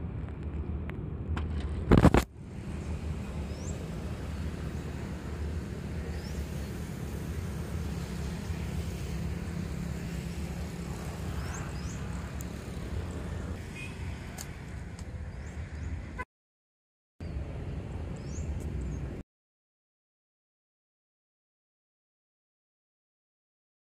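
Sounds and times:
low outdoor rumble: 0:00.0 - 0:16.2.

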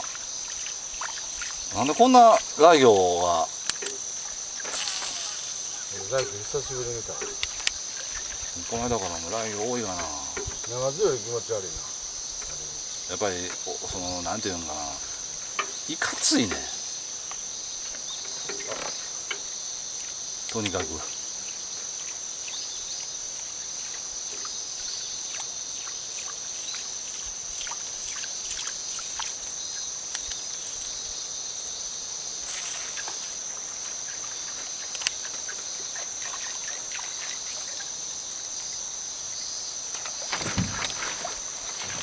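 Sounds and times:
high-pitched insect chorus: 0:00.0 - 0:42.0
light ticks: 0:30.1 - 0:30.4, 0:34.9 - 0:35.9.

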